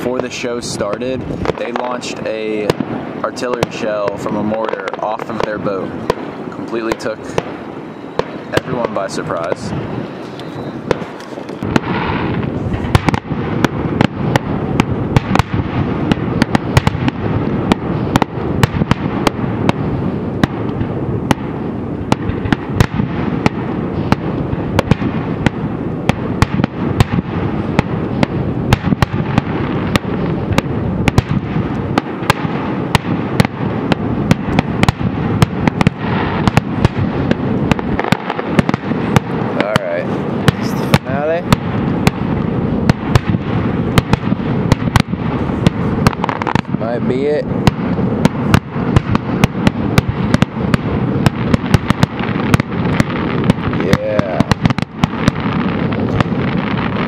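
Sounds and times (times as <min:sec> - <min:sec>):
fireworks bangs and cracks: 0:00.0 - 0:57.0.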